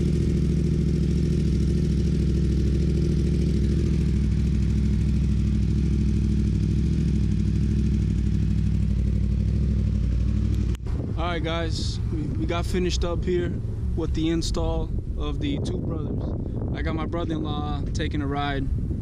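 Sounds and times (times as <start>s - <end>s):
motorcycle engine idling: 0.0s - 15.2s.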